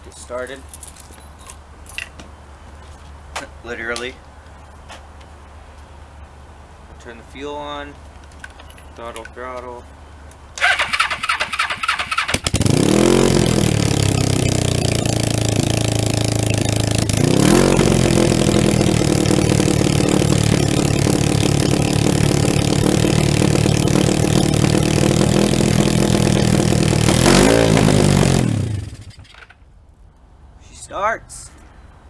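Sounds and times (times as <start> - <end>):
motorcycle engine revving: 10.6 - 29.3.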